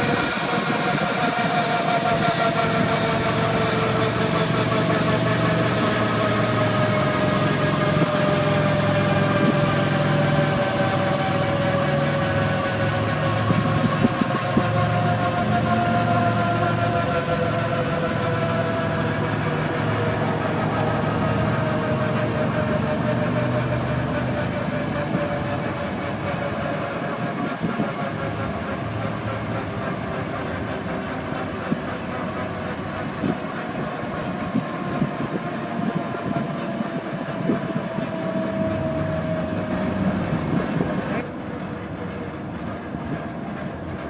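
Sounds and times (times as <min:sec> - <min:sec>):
helicopter winding down: 0:00.0 - 0:44.0.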